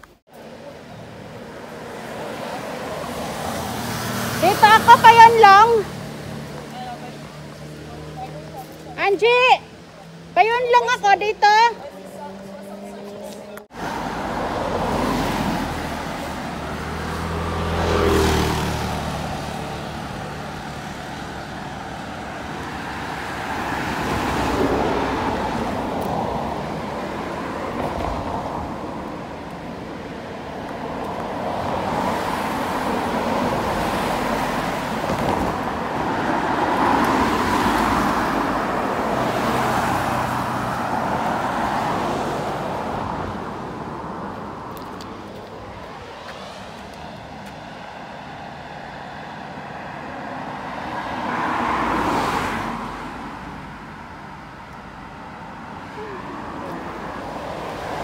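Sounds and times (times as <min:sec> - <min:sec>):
vehicles passing: 0:00.0 - 0:58.0.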